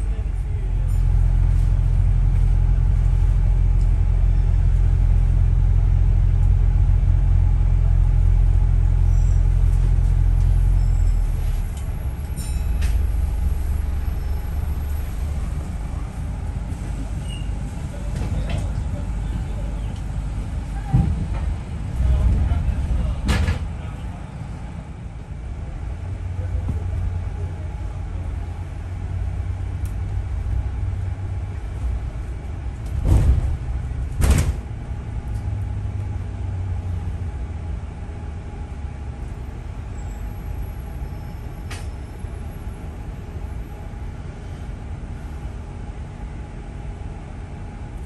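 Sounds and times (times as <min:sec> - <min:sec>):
bus engine and road rumble: 0:00.0 - 0:48.0
loud thumps: 0:34.2 - 0:34.7.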